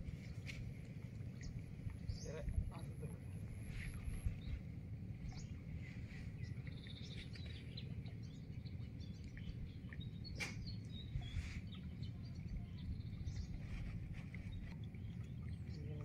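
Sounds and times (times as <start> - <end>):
low outdoor rumble: 0.0 - 16.0
small birds chirping: 1.3 - 16.0.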